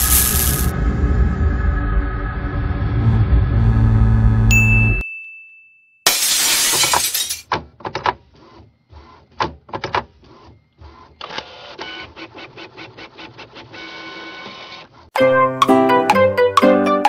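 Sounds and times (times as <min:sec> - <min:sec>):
loud rushing noise: 0:00.0 - 0:04.4.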